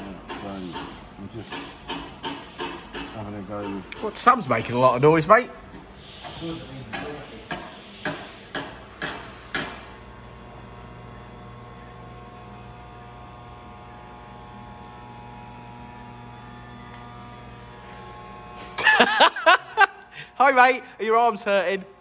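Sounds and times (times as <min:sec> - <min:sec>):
electrical hum with tones: 0:00.0 - 0:22.0
sharp knocks: 0:06.9 - 0:09.9.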